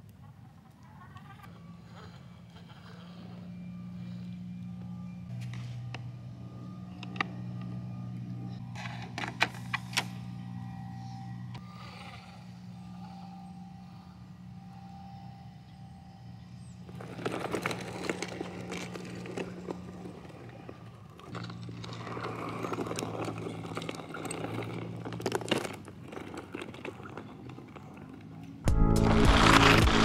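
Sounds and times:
faint low hum: 0.0 - 28.7
dolly wheels rattling over dirt: 16.3 - 30.0.

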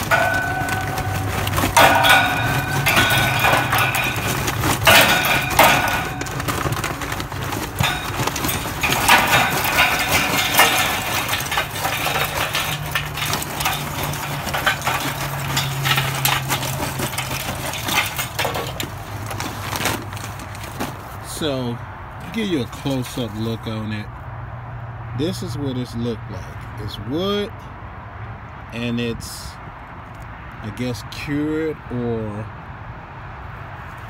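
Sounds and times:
charcoal clattering onto metal grate: 0.0 - 21.4.

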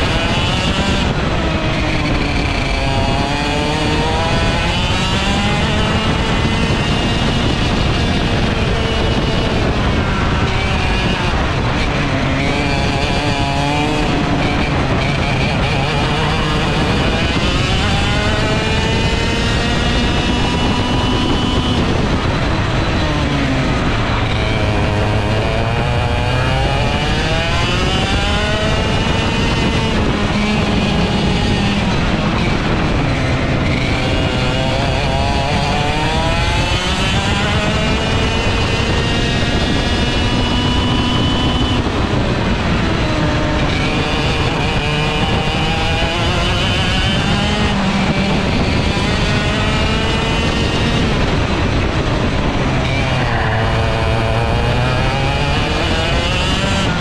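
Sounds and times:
kart engine racing: 0.0 - 57.0
second engine: 0.0 - 57.0.

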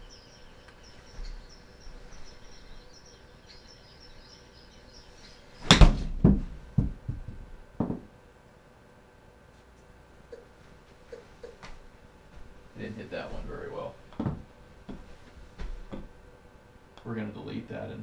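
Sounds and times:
golf club striking ball: 5.6 - 6.2
ball bouncing knocks: 5.7 - 8.1, 14.2 - 15.0.

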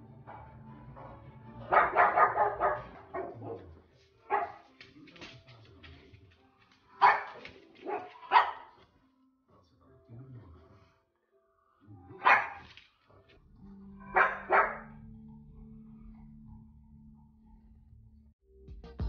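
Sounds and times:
dog barking: 0.3 - 4.9, 6.9 - 8.8, 12.1 - 12.8, 14.0 - 15.0.

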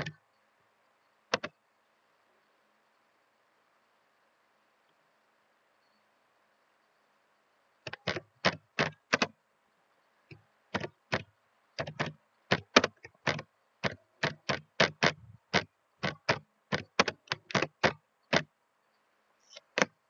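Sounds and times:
keyboard key clicks: 1.3 - 1.5, 7.9 - 9.3, 10.8 - 18.5.

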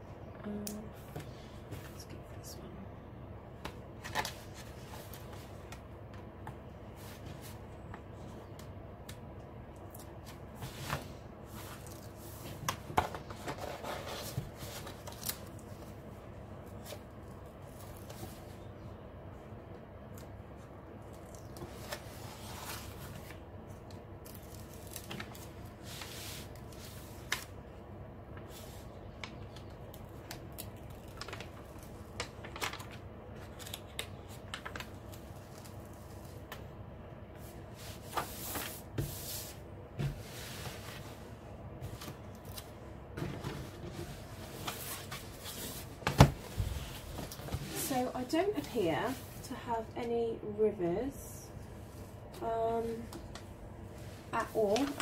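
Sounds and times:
faint steady hum: 0.0 - 55.0
plastic film rustling and crinkling: 28.4 - 36.5.

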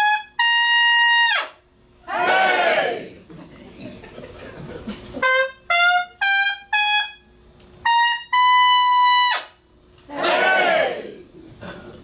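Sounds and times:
trumpet fanfare: 0.0 - 1.6, 5.2 - 7.2, 7.8 - 9.6.

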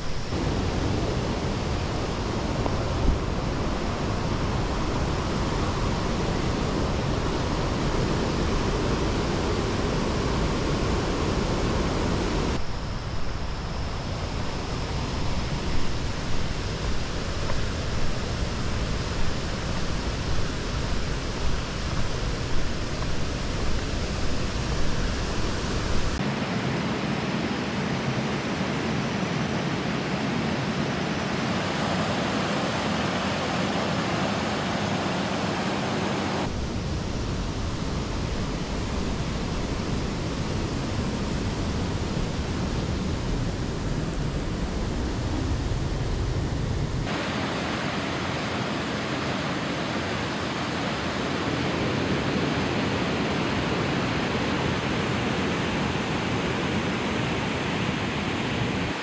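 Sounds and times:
water rushing in creek and waterfall: 0.0 - 12.6, 14.4 - 44.4, 47.0 - 59.0.

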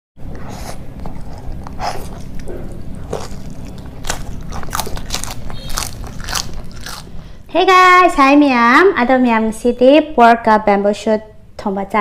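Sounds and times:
chewing with crisp crunches: 0.2 - 7.3
steady low hum: 0.2 - 12.0.

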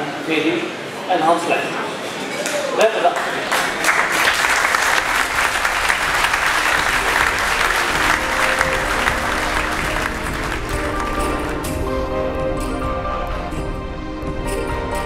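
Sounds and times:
audience applauding: 3.1 - 12.0
music: 4.5 - 15.0.

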